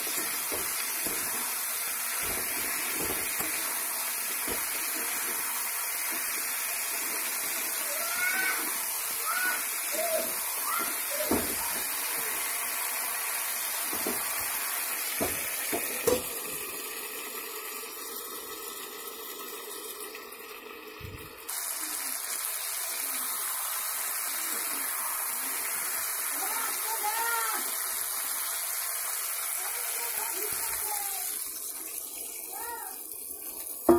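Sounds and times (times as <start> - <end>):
curry hissing in a pan: 0.0 - 20.1, 21.4 - 33.9
knocks against a pan: 0.1 - 1.5, 10.8 - 12.0, 13.9 - 14.5, 15.2 - 16.4.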